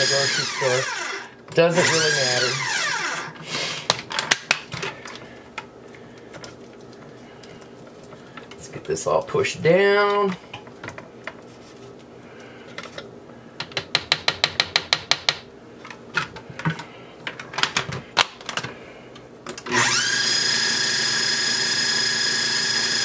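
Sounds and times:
food processor motor whining: 0.0s - 3.4s, 19.6s - 23.0s
plastic clicks and knocks: 13.6s - 15.4s.

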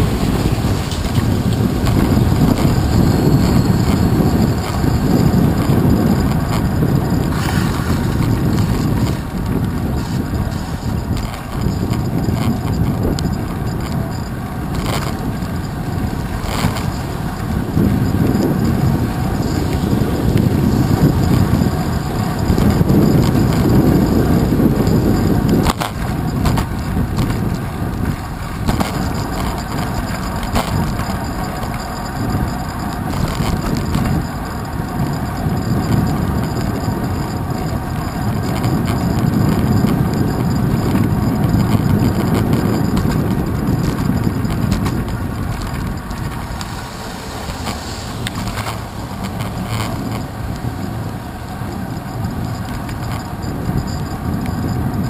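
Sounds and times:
road rumble from bicycle tyres: 0.0s - 55.0s
wind buffeting: 0.0s - 55.0s.

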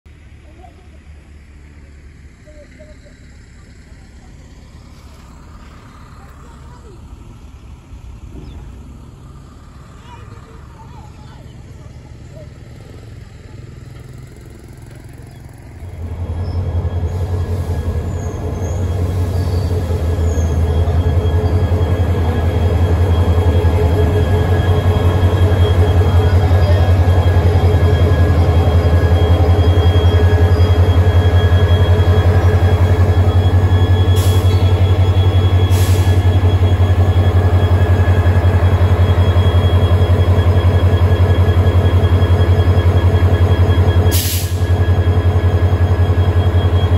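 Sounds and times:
diesel locomotive engine throb: 0.1s - 46.9s
steady whining tones: 12.9s - 46.9s.

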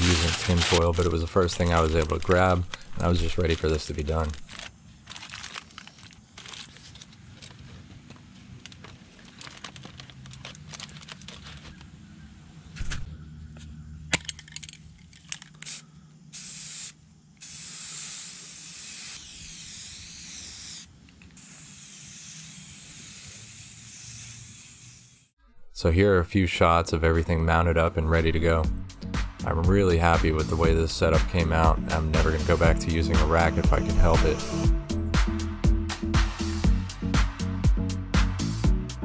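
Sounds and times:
rustling handling noises: 0.0s - 12.0s
aerosol spray can hissing: 15.6s - 25.3s, 31.9s - 33.0s.

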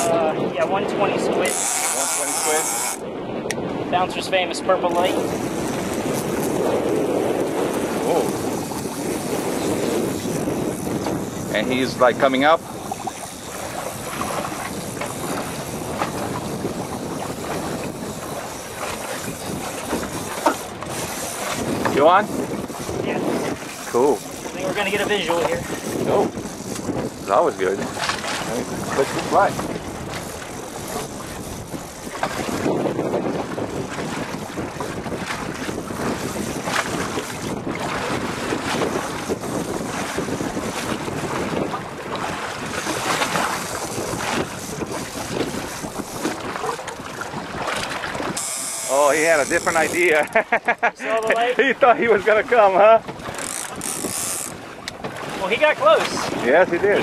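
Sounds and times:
water: 0.0s - 57.0s
wind: 0.0s - 57.0s.

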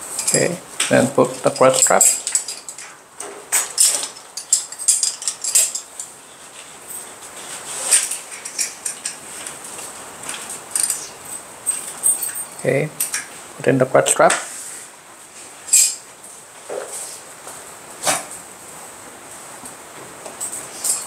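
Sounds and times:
metal harness buckles clinking: 0.2s - 0.6s, 1.4s - 2.9s, 3.5s - 7.2s, 10.3s - 13.3s.

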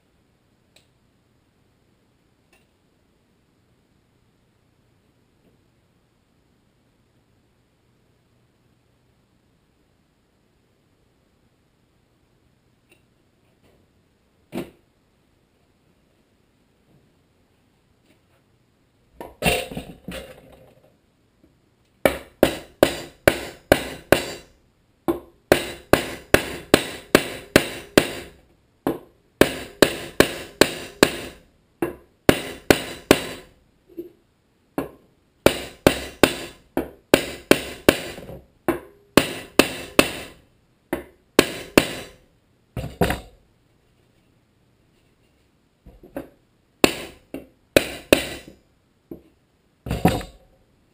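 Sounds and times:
hammer striking wooden block: 22.0s - 24.5s, 25.1s - 33.5s, 34.8s - 42.2s, 42.8s - 43.4s, 46.1s - 48.6s, 49.9s - 50.4s.

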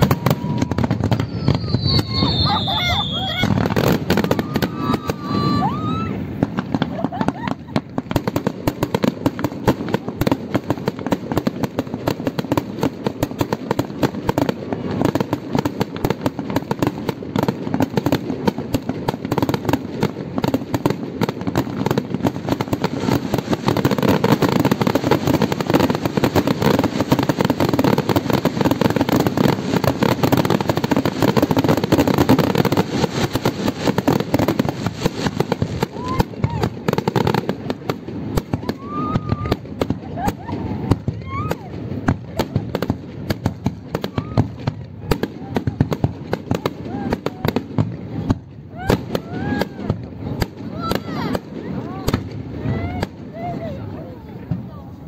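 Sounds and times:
fireworks crackling: 0.0s - 55.0s.

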